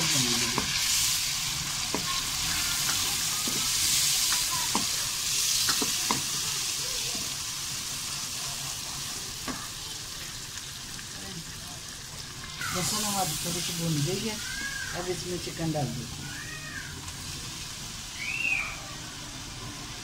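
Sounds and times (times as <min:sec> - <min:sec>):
onions sizzling in hot oil: 0:00.0 - 0:20.0
wooden spoon knocking on pan: 0:05.7 - 0:06.3.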